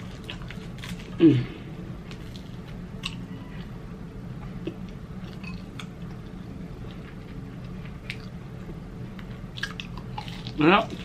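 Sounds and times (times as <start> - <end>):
crispy food crackling: 0.0 - 1.4, 9.3 - 11.0
steady low hum: 0.0 - 11.0
chewing fried chicken: 4.6 - 11.0.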